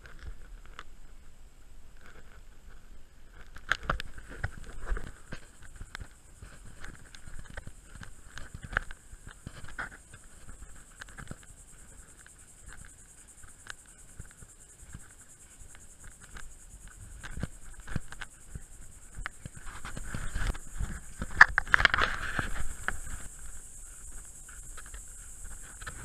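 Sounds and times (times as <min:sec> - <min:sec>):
high insect buzz: 0:00.0 - 0:26.0.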